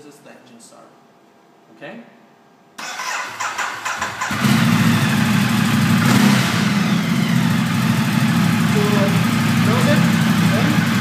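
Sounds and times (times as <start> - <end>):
electric starter cranking: 2.8 - 4.8
motorcycle engine idling: 3.9 - 11.0.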